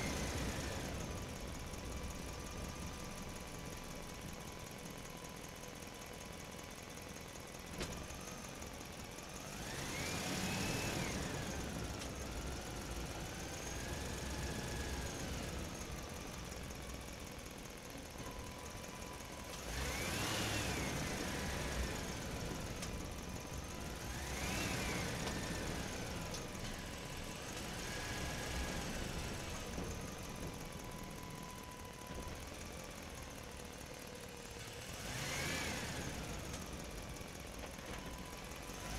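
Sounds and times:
vehicle engine revving: 9.4s - 15.8s, 19.6s - 23.0s, 23.7s - 30.0s, 34.7s - 36.7s.

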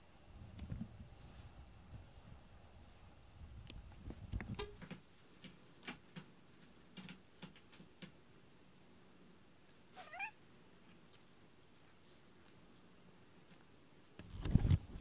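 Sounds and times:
cat chirp: 9.9s - 10.4s.

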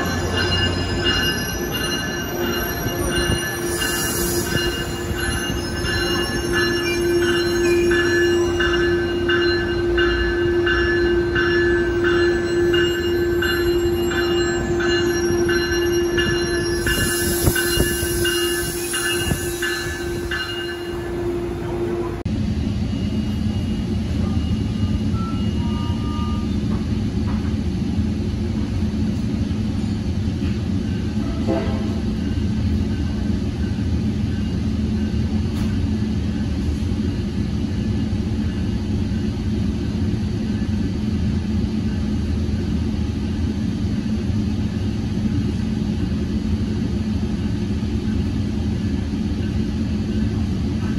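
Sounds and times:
bell-like ding: 0.0s - 21.3s
hum inside train coach: 0.0s - 50.9s
train moving slowly with whine: 0.0s - 50.9s.

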